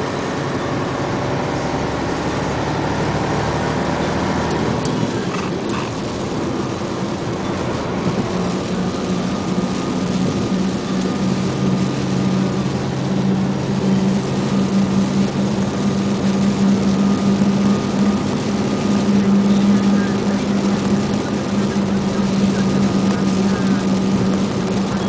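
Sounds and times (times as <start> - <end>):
tyre noise on wet road: 0.0 - 25.0
vehicle engine hum: 0.0 - 25.0.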